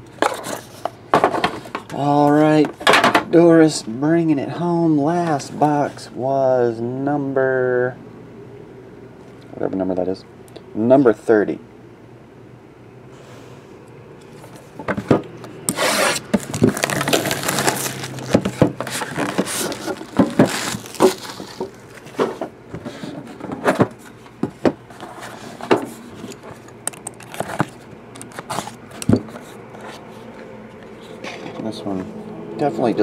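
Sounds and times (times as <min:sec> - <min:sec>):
plastic wrap crinkling and tearing: 0:15.7 - 0:22.1.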